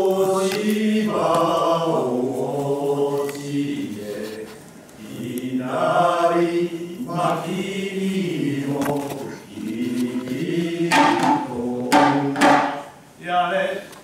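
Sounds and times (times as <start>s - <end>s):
men chanting in long held notes: 5.0s - 12.7s
small hand drum strikes: 10.9s - 13.0s.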